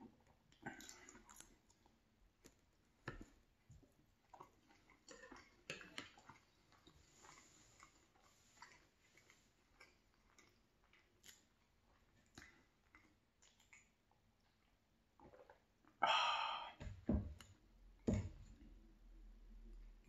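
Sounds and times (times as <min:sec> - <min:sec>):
sipping and swallowing: 0:00.5 - 0:01.8
breathy exhale: 0:16.0 - 0:16.8
mug thumping on wooden board: 0:16.8 - 0:17.4.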